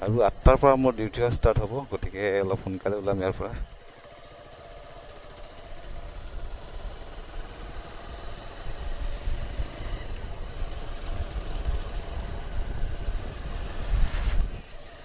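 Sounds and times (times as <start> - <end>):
motorcycle engine running: 0.0 - 15.0
wind rumble on microphone: 8.9 - 14.7.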